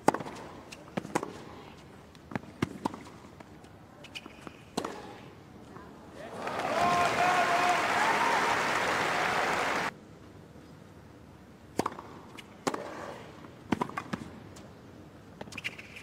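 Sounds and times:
tennis ball bounces: 0.0s - 1.5s, 11.7s - 12.9s
crowd applause: 6.2s - 9.9s.

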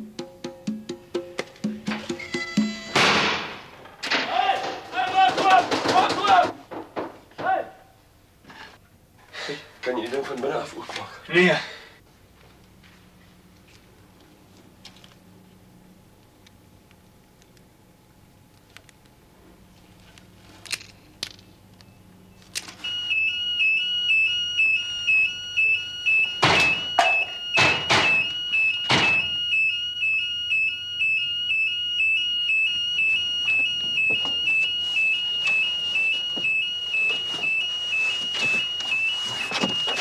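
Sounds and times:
two-tone intruder alarm siren: 22.8s - 40.0s.

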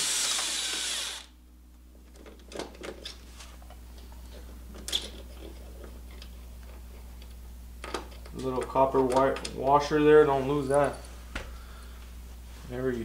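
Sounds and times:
cordless power driver spinning: 0.0s - 1.3s.

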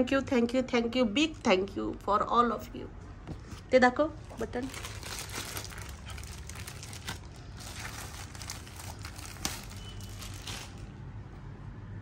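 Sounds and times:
plastic bag crinkling: 4.2s - 11.0s.

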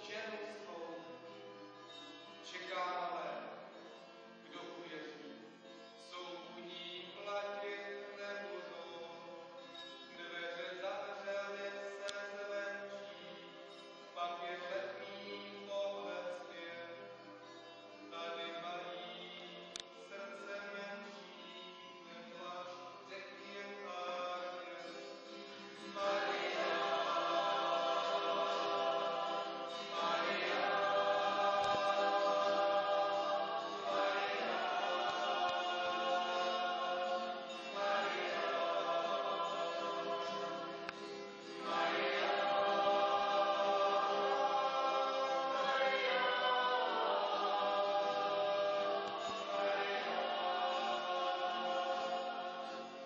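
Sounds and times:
group singing a carol: 21.1s - 53.0s.

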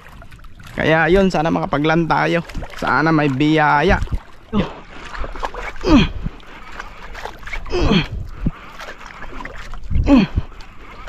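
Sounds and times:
water lapping against hull: 0.0s - 11.0s
wooden boat creaking: 0.0s - 11.0s.

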